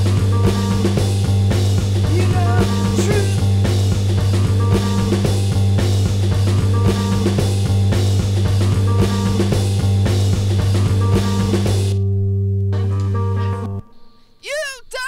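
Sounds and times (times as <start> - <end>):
drums steady beat: 0.0 - 12.0.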